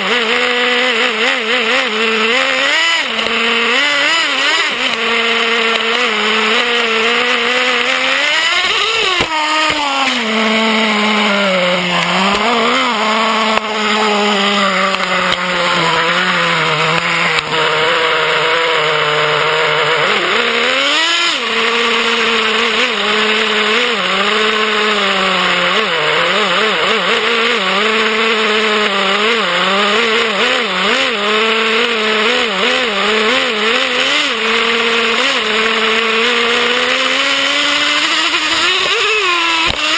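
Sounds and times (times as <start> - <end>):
rc truck engine running: 0.0 - 39.9.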